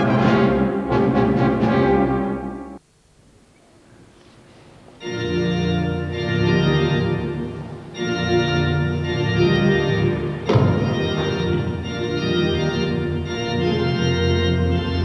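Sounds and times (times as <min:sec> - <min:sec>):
organ chords: 0:00.0 - 0:02.8, 0:05.0 - 0:15.0.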